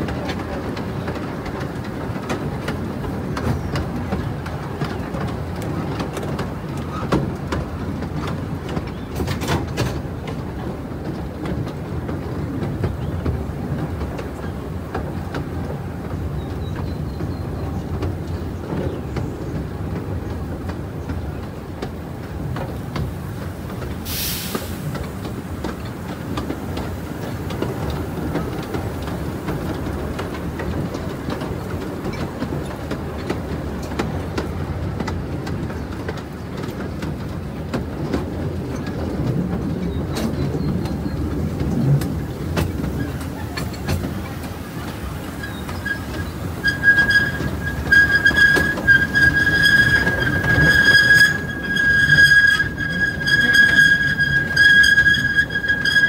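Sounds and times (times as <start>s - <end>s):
train rumble: 0.0s - 56.0s
wheels clicking over rails: 0.0s - 56.0s
brief hiss: 24.1s - 25.0s.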